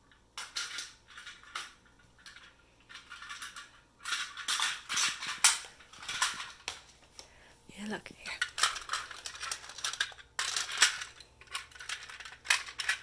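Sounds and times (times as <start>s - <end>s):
plastic toy train pieces clattering: 0.0s - 6.8s, 8.3s - 13.0s.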